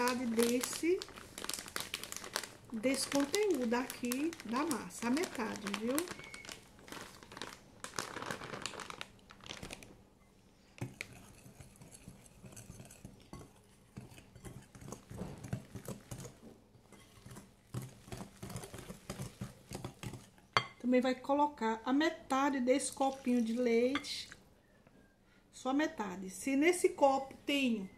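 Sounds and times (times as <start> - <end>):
plastic bag crinkling: 0.0 - 10.0
whisk scraping in glass bowl: 10.8 - 20.3.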